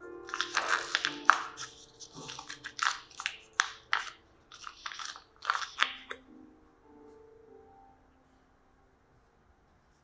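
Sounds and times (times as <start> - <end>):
cookie crunching: 0.3 - 6.2.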